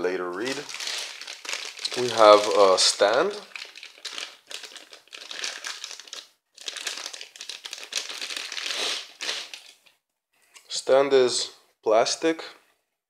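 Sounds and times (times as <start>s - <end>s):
plastic bag crinkling: 0.3s - 9.9s.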